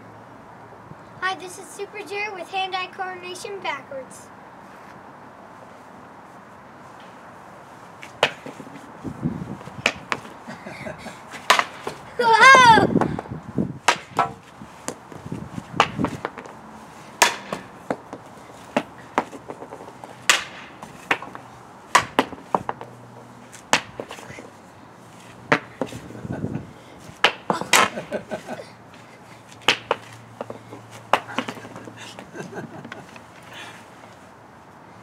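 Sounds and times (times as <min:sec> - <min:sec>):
hockey stick striking pucks: 0:08.0 - 0:08.8, 0:09.8 - 0:10.4, 0:11.3 - 0:13.1, 0:13.9 - 0:15.0, 0:15.8 - 0:23.0, 0:23.6 - 0:24.4, 0:25.5 - 0:26.0, 0:27.2 - 0:28.6, 0:29.6 - 0:33.2.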